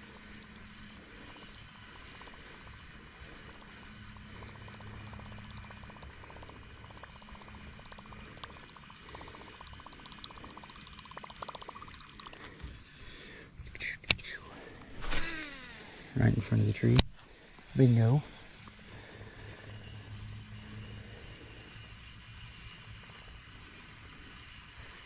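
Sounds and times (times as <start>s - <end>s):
insects chorus: 0.0s - 25.0s
fishing lure gurgling and splashing: 6.3s - 12.7s.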